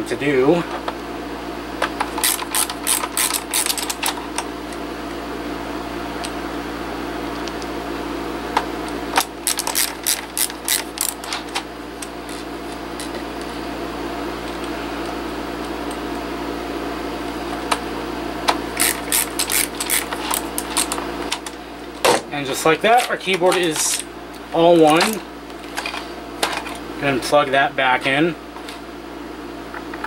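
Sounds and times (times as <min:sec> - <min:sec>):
steady background hum: 0:00.0 - 0:30.0
screwdriver clicking: 0:02.2 - 0:04.5, 0:09.4 - 0:11.2, 0:18.8 - 0:21.0.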